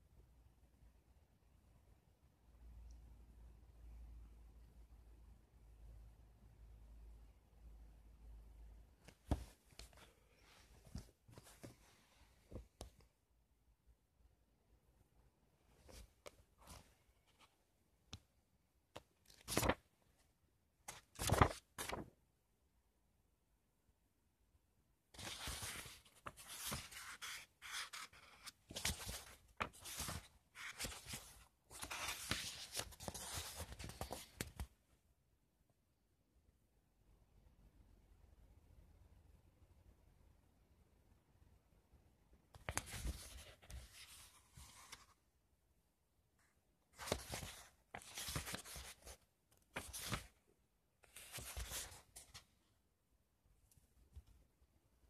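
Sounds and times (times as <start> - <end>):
book pages turning: 19.0 - 19.8, 20.9 - 22.1, 25.2 - 34.7, 42.6 - 45.2, 47.0 - 50.4, 51.0 - 52.4.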